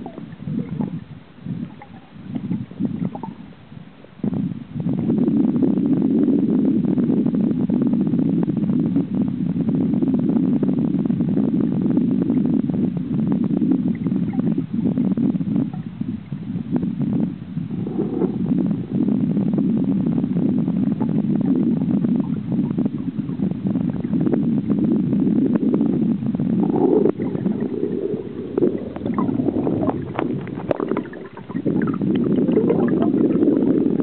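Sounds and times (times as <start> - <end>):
muffled underwater river rumble: 0.0 - 34.0
small crackles: 26.7 - 33.6.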